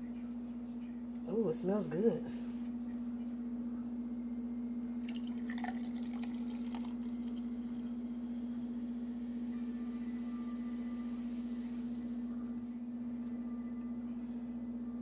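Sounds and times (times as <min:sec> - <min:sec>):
steady low hum: 0:00.0 - 0:15.0
fizzy drink pouring: 0:04.8 - 0:09.4.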